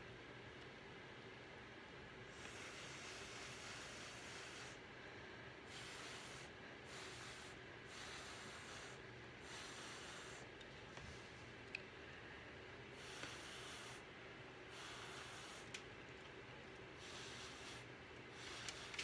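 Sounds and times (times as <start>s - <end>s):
breath blown through a straw: 5.7s - 10.5s.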